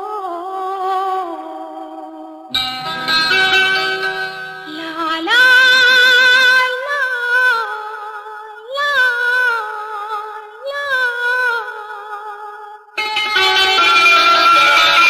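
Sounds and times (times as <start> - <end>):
soft instrumental accompaniment: 2.5 - 5.5.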